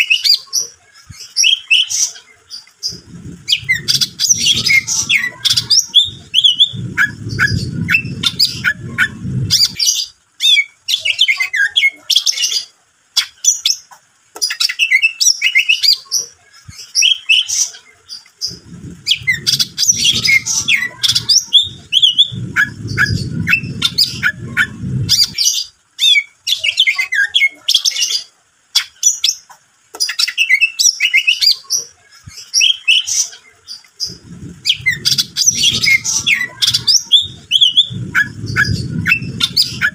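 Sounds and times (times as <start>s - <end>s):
bird singing chirps and whistles: 0.0s - 0.5s, 1.2s - 2.1s, 2.9s - 13.8s, 14.4s - 16.0s, 16.8s - 17.6s, 18.4s - 28.2s, 30.0s - 31.6s, 32.4s - 33.2s, 34.0s - 39.9s
low rumbling noise: 2.8s - 10.3s, 18.3s - 25.9s, 34.0s - 39.9s.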